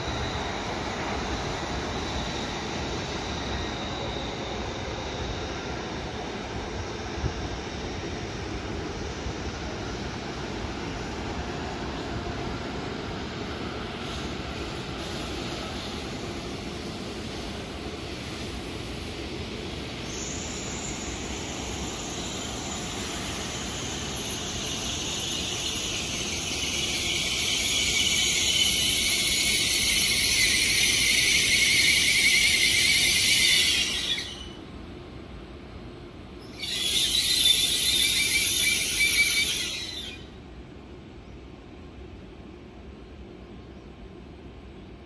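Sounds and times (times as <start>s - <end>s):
train brake squeal: 0.0s - 34.7s, 36.4s - 40.5s
train rumble: 0.0s - 45.0s.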